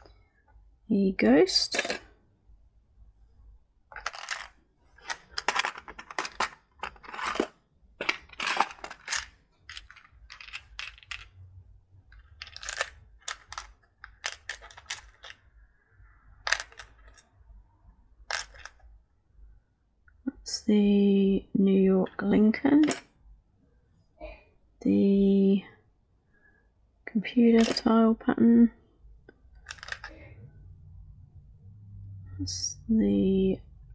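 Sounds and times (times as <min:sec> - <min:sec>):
plastic parts clicking and clattering: 0:01.6 - 0:02.1, 0:03.9 - 0:11.4, 0:12.1 - 0:15.5, 0:16.4 - 0:17.3, 0:18.3 - 0:18.8, 0:22.6 - 0:23.1, 0:27.5 - 0:28.0, 0:29.2 - 0:30.4.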